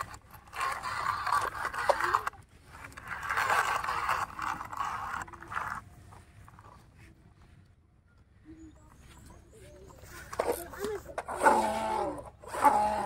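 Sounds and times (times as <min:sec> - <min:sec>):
toy truck scraping over dirt: 0:00.0 - 0:07.1, 0:09.8 - 0:13.0.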